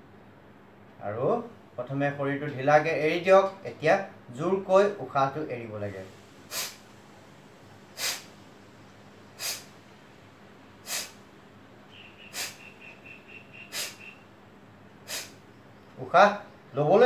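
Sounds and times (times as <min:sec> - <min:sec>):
forceful nasal exhalations: 0:06.4 - 0:07.0, 0:07.9 - 0:08.4, 0:09.3 - 0:09.8, 0:10.8 - 0:11.3, 0:12.2 - 0:13.0, 0:13.6 - 0:14.2, 0:15.0 - 0:15.5.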